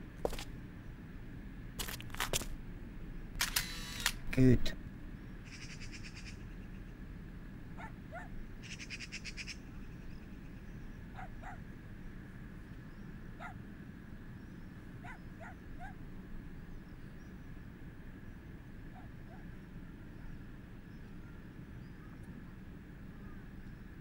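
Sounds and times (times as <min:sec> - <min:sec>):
low background rumble: 0:00.0 - 0:24.0
faint short animal calls: 0:05.4 - 0:06.6.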